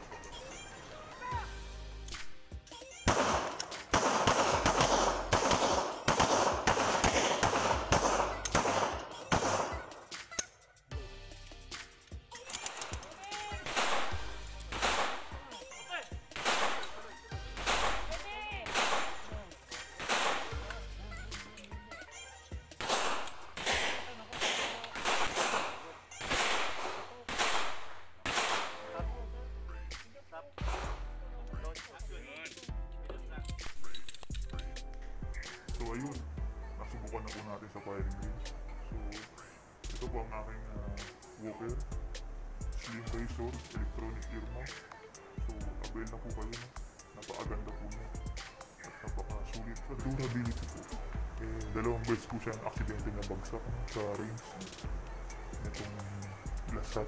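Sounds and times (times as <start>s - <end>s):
pistol shots: 3.1s - 10.3s, 13.6s - 15.4s, 16.3s - 20.8s, 22.8s - 29.0s.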